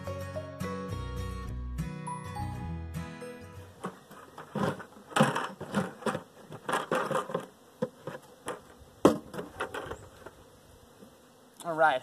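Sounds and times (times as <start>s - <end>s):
honeybees buzzing: 3.5s - 12.0s
rustling: 3.7s - 11.2s
knocks on plastic bucket: 9.0s - 9.9s.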